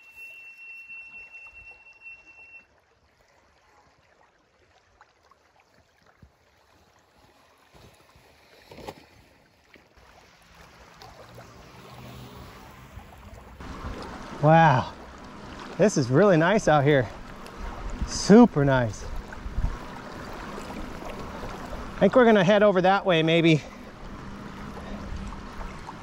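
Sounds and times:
bike brakes squealing: 0.0 - 2.6.

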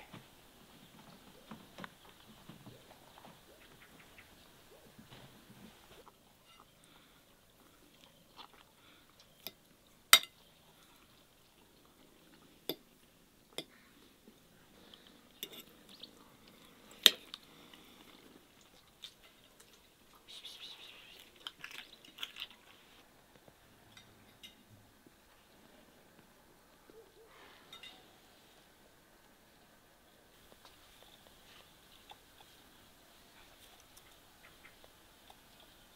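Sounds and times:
quiet eating sounds: 0.0 - 35.9
fork clinking against a plate: 10.2 - 10.4.

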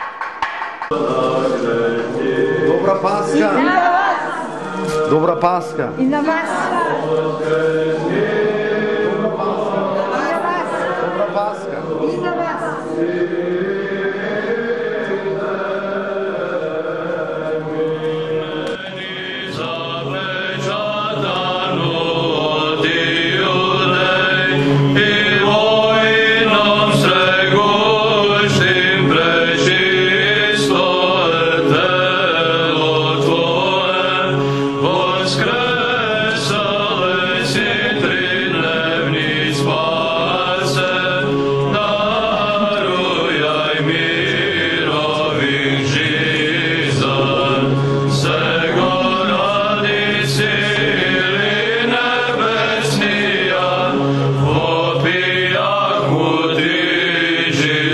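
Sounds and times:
voices chanting slow melody: 0.9 - 57.9
held drone note: 17.1 - 57.9.

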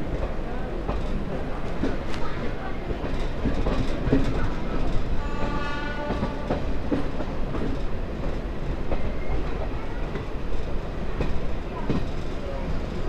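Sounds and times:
train rumbling on track: 0.0 - 13.0
train horn: 5.1 - 6.8.

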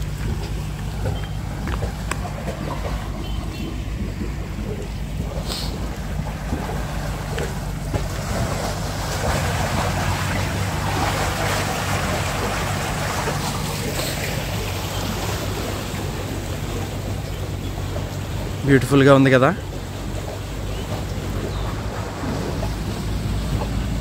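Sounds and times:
low rumble: 0.0 - 18.6
water rushing through channel: 0.0 - 24.0.

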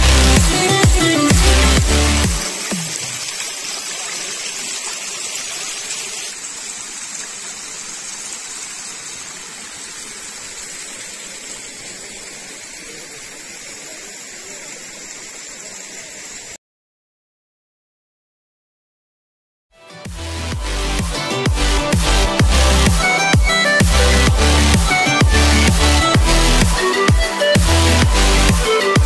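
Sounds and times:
stream rushing over rocks: 0.0 - 16.6.

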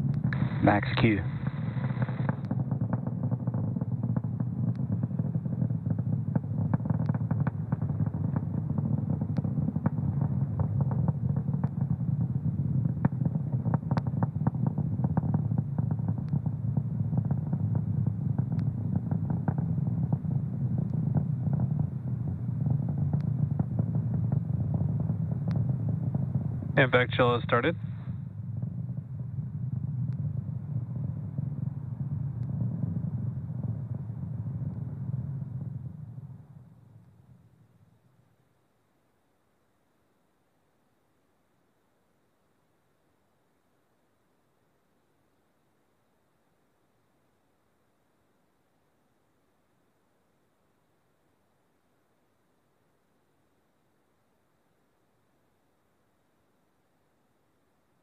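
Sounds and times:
rocket engines rumbling: 0.0 - 37.8.

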